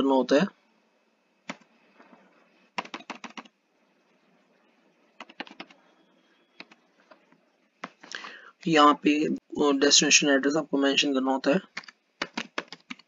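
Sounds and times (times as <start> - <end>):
laptop keys clicking: 1.5 - 1.7, 2.8 - 3.5, 5.2 - 5.8, 6.6 - 6.8, 11.7 - 13.0.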